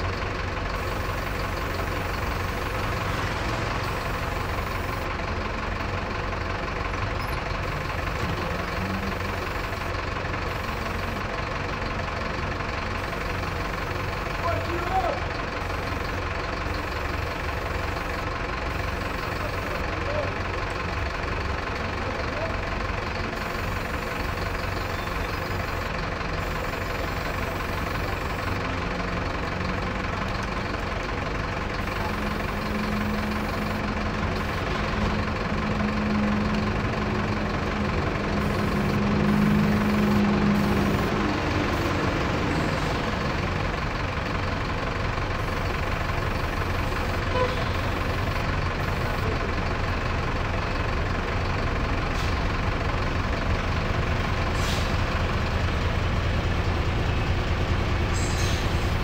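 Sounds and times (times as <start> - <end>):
vehicle engine idling: 0.0 - 59.0.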